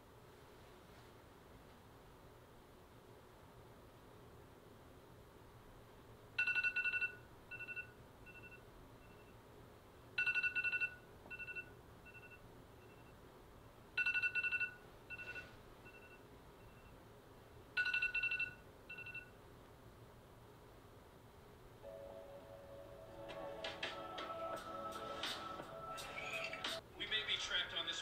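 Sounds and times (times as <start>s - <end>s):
electronic telephone ringing: 6.4s - 8.6s, 10.2s - 13.0s, 14.0s - 16.2s, 17.8s - 19.3s.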